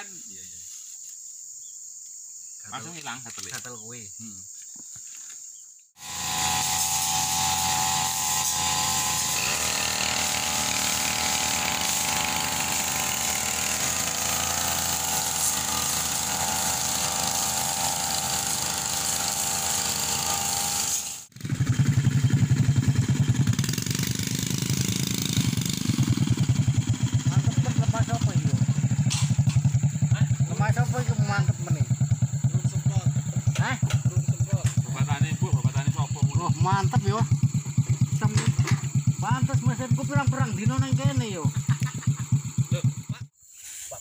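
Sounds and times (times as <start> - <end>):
brush cutter whining: 6.0 - 43.2
motorcycle engines puttering: 21.3 - 43.3.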